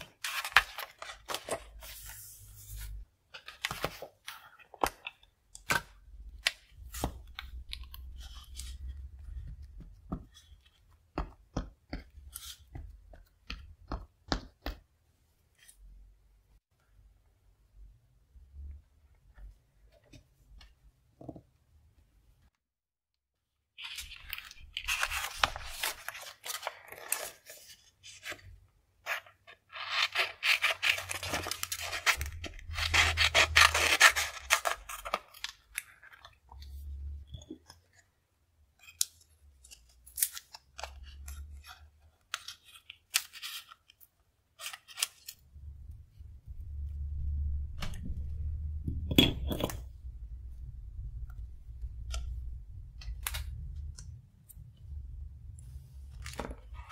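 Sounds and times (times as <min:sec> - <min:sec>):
paper being handled: 0:00.0 - 0:05.0, 0:23.8 - 0:36.1.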